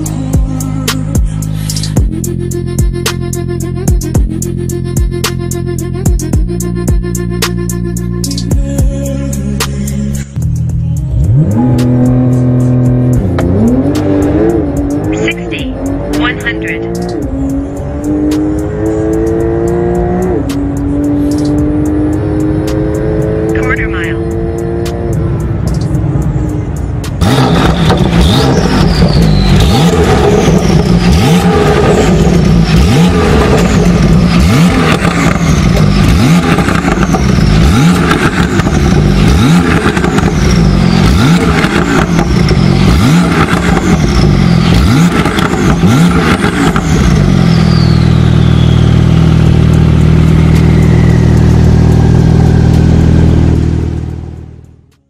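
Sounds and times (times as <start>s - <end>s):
car engine idling: 0.0s - 55.0s
car engine revving: 9.4s - 55.0s
turbo whistle: 47.4s - 49.3s.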